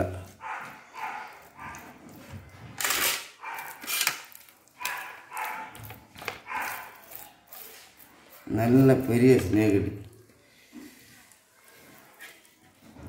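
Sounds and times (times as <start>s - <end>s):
dog barking: 0.4s - 2.0s, 3.4s - 3.8s, 4.8s - 7.2s.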